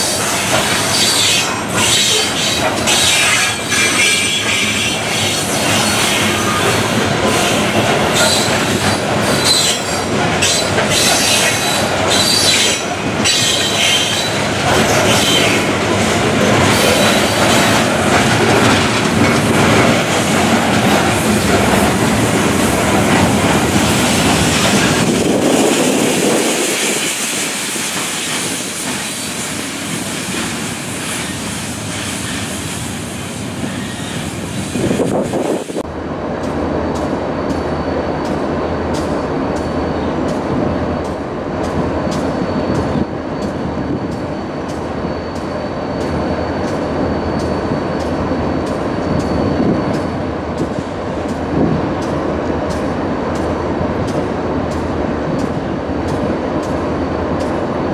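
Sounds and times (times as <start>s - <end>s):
train wheels clacking over rail joints: 0.0s - 32.6s
diesel locomotive engine hum: 0.0s - 57.9s.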